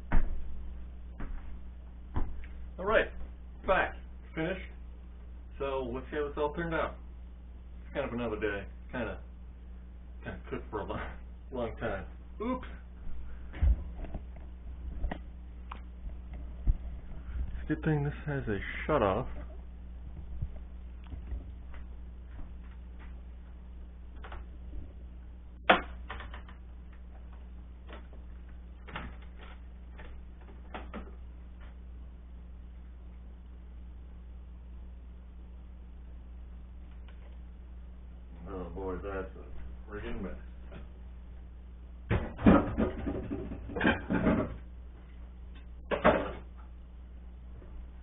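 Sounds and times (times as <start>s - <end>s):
dishes clattering in a sink: 42.2s - 44.6s.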